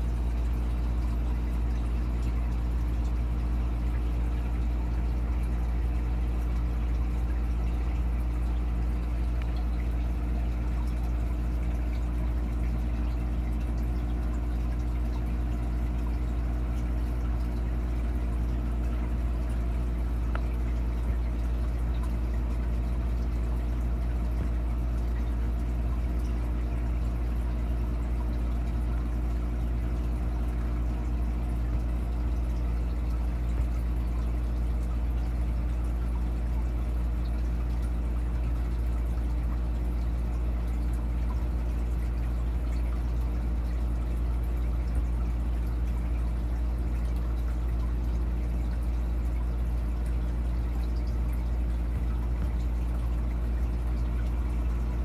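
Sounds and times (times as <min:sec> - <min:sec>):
aquarium filter hum: 0:00.0 - 0:55.0
water trickling and pouring: 0:00.0 - 0:55.0.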